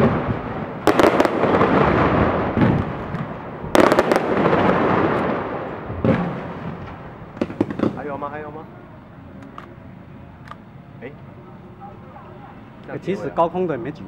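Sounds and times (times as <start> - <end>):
fireworks bangs: 0.0 - 8.3
fireworks crackling: 0.0 - 8.6.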